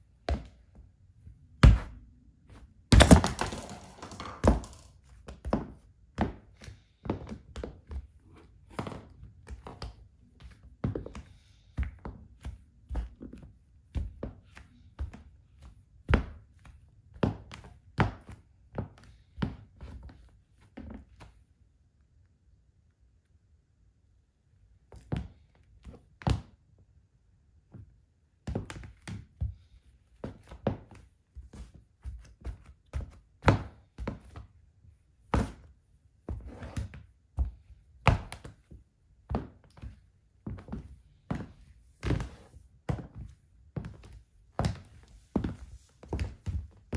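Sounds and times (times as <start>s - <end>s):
high heels stomping on floor: 2.9s - 4.9s.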